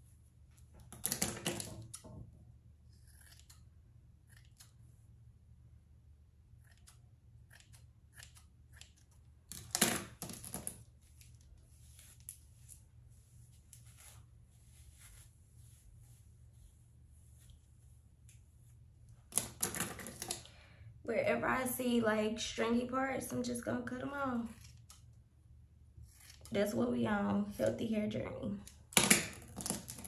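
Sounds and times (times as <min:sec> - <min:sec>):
comb dragging through hair: 0:11.0 - 0:18.9.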